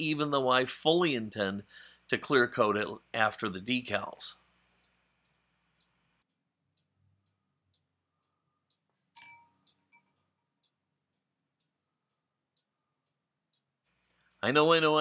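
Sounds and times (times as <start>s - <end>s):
faint even ticking: 0.0s - 15.0s
light ringing clink: 9.2s - 10.2s.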